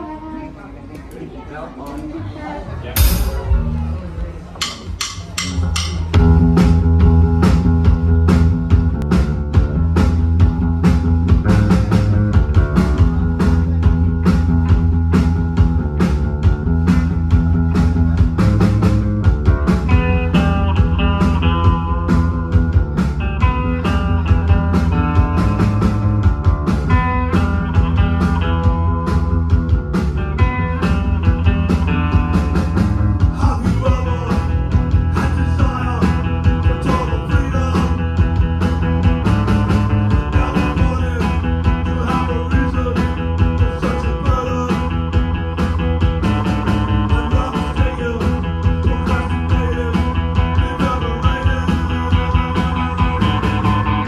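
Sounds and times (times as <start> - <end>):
bass guitar: 2.8 - 54.0
drum kit beats: 3.0 - 54.0
electric guitar: 5.6 - 54.0
man singing into microphone: 33.3 - 38.2, 40.2 - 45.2, 47.0 - 53.4.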